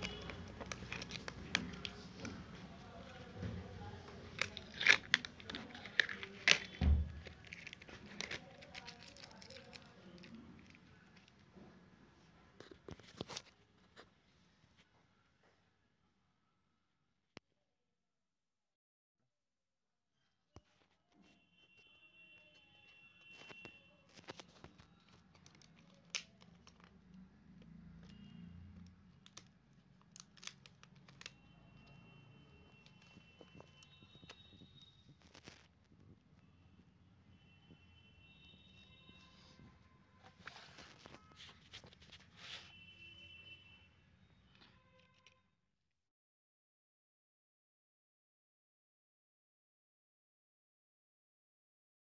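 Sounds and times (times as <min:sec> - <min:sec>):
plastic clicks and crinkles: 0:00.0 - 0:11.6, 0:12.6 - 0:14.1, 0:22.6 - 0:36.4, 0:38.4 - 0:42.7.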